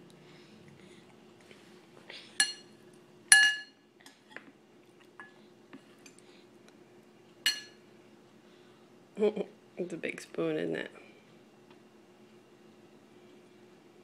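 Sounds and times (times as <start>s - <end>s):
spoon clinking on glass bowl: 3.3s - 3.8s, 7.5s - 7.8s.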